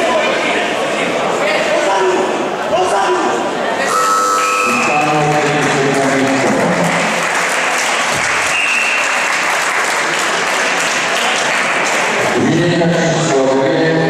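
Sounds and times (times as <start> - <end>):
spectators applauding: 4.4 - 12.4.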